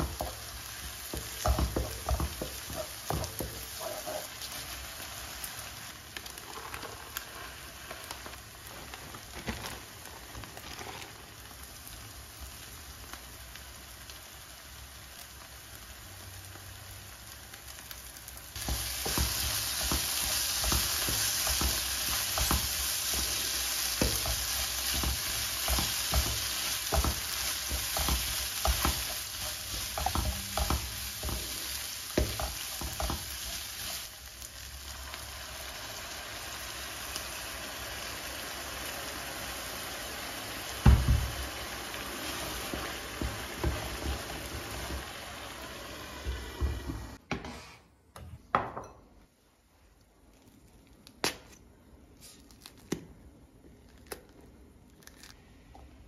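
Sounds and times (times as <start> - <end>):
wooden spoon scraping a pan: 0.0 - 4.9, 6.2 - 11.4, 18.6 - 34.1
food sizzling in a frying pan: 0.0 - 47.2.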